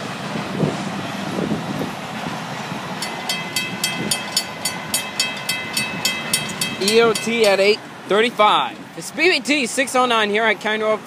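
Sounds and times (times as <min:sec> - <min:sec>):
train rolling over rails: 0:00.0 - 0:08.1
crossing bell ringing: 0:02.9 - 0:07.9.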